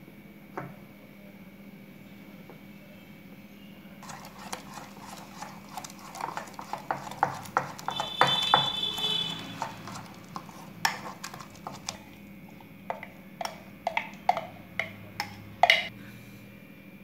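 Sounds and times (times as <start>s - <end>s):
plastic spoon scraping steel jar: 4.0s - 12.2s.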